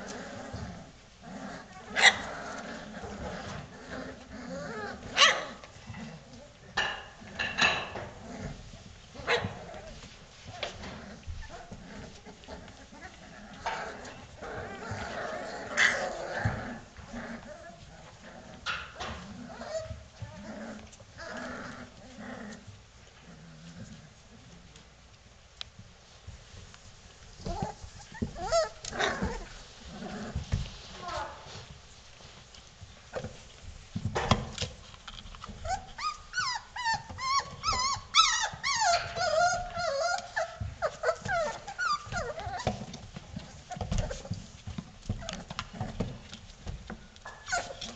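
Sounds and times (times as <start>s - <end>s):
puppies whining and whimpering: 1.3s - 5.1s, 9.4s - 18.6s, 19.2s - 22.0s, 27.4s - 29.6s, 35.6s - 44.4s, 47.3s - 47.9s
scuffling: 25.9s - 47.9s
puppies yipping and whimpering: 27.5s - 29.5s, 35.6s - 42.9s, 47.3s - 47.9s.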